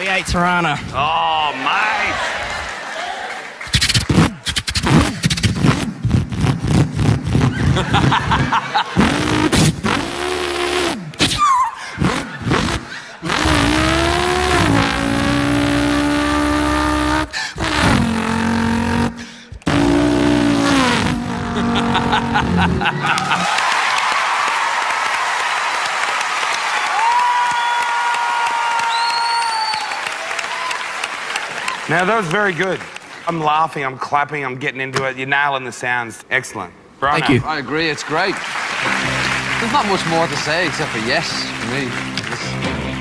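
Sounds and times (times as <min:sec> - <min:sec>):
audience applause: 0:01.4 - 0:03.8, 0:22.1 - 0:33.2, 0:37.3 - 0:43.0
man imitating engine revs: 0:04.2 - 0:23.4, 0:39.5 - 0:43.0.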